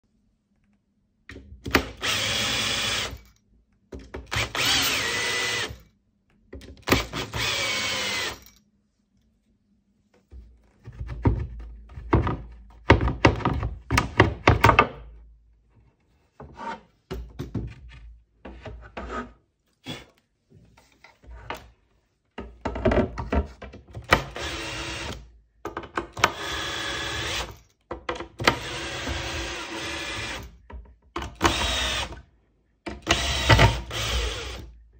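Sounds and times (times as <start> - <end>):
cordless drill motor running: 1.8 - 3.2, 4.3 - 5.8, 6.9 - 8.4, 24.3 - 25.2, 26.3 - 27.5, 28.5 - 30.4, 31.4 - 32.1, 33.0 - 34.7.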